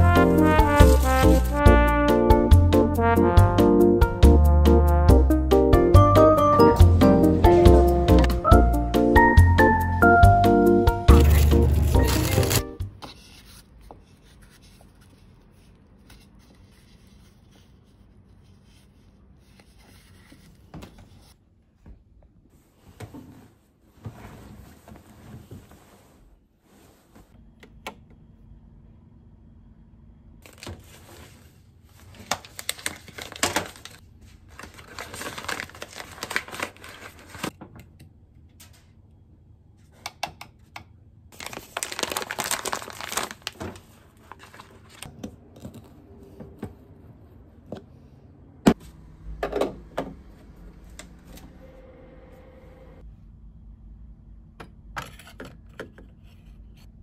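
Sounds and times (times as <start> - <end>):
paper bag crinkling: 0.1 - 1.6, 11.1 - 12.7, 32.0 - 37.5, 41.4 - 45.1.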